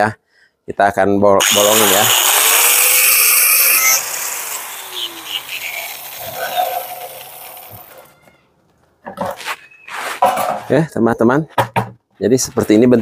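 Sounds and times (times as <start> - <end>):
angle grinder spinning down: 1.4 - 8.2.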